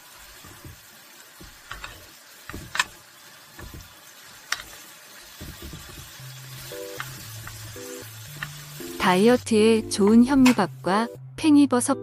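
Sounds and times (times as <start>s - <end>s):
faint sizzle: 0.0s - 11.2s
wooden spatula clicking on pan: 1.4s - 3.0s.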